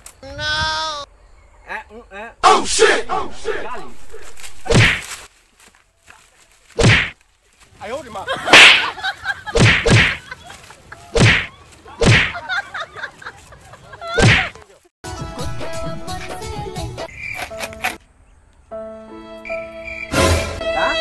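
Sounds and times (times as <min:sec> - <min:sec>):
slap and punch effects: 0:04.4 - 0:05.1, 0:06.8 - 0:07.2, 0:08.5 - 0:08.9, 0:09.6 - 0:10.2, 0:11.2 - 0:12.4, 0:14.2 - 0:14.6
insects chirring: 0:17.0 - 0:18.0, 0:19.4 - 0:20.4.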